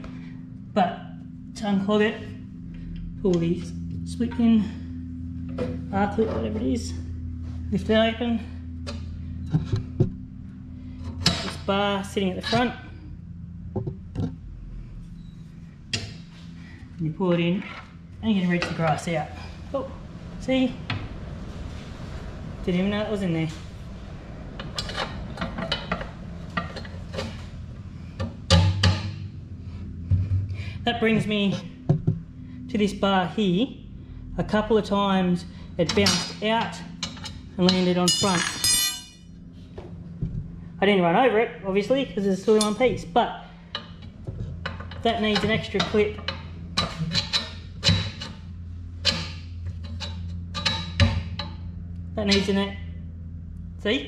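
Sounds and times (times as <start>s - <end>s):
steady low hum: 0.0s - 54.0s
steel bar clanking against metal: 35.9s - 39.3s, 43.7s - 51.7s
metal clinks and clanks: 37.0s - 39.3s.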